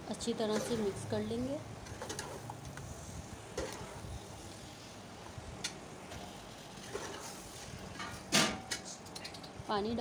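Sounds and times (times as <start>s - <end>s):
clicks and scrapes against pot: 0.4s - 1.0s, 1.8s - 2.8s, 6.1s - 9.6s
metal spoon stirring in a pot: 0.4s - 2.5s.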